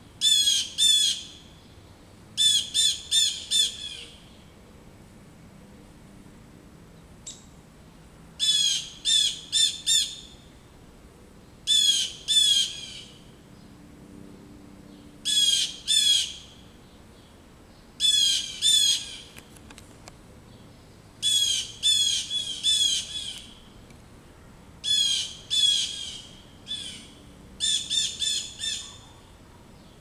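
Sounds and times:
blue jays harsh alarm calls: 0:00.2 - 0:01.4, 0:02.4 - 0:04.2, 0:08.4 - 0:10.4, 0:11.7 - 0:13.2, 0:15.2 - 0:16.5, 0:18.0 - 0:19.4, 0:21.2 - 0:23.6, 0:24.8 - 0:29.0.

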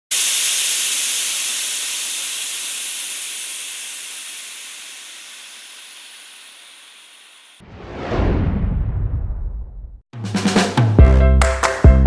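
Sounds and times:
steam hissing: 0:00.1 - 0:07.6.

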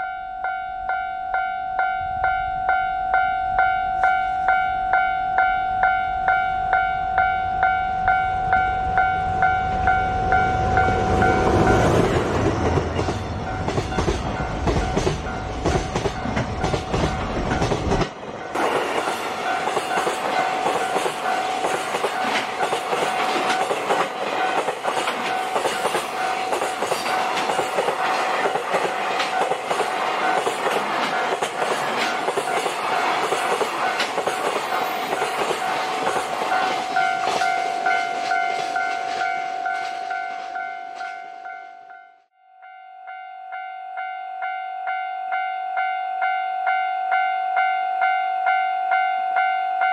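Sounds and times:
level crossing bell ringing: 0:00.0 - 0:11.8, 0:36.5 - 0:49.9.

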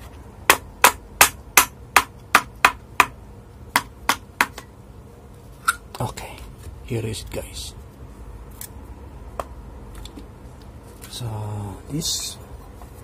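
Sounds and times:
sharp knocks on fan motor: 0:00.4 - 0:04.7.

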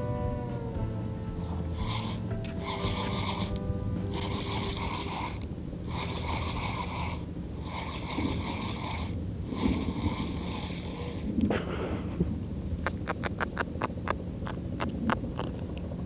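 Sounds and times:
fishing reel whirring: 0:00.8 - 0:11.5.

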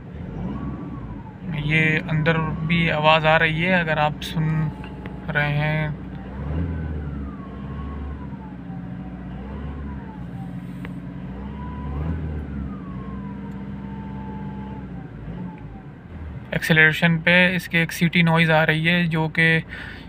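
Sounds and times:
engine revving: 0:00.0 - 0:16.6.

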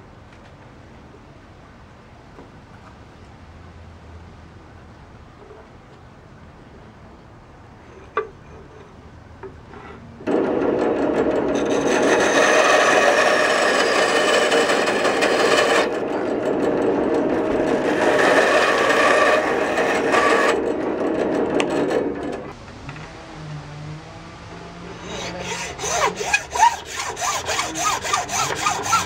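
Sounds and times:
band saw cutting stone: 0:10.3 - 0:29.0.

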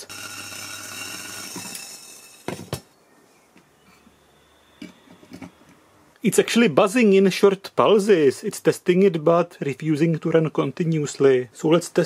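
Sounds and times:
induction cooker buzzing: 0:00.0 - 0:02.8.

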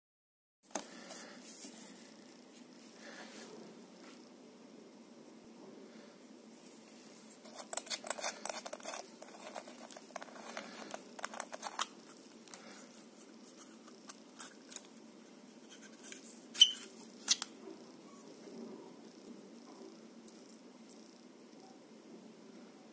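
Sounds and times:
metal end cap unscrewing scrapes: 0:07.4 - 0:11.9.

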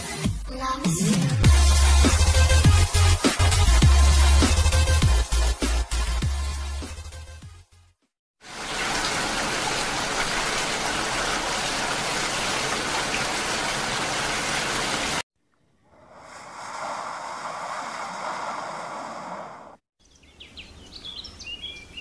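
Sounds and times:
heavy rain hiss: 0:08.4 - 0:15.2, 0:16.2 - 0:19.8.

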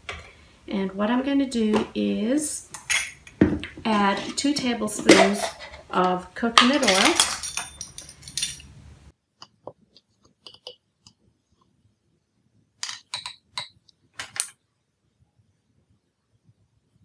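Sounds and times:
metal spoon clinking on glass jar: 0:06.7 - 0:08.7.

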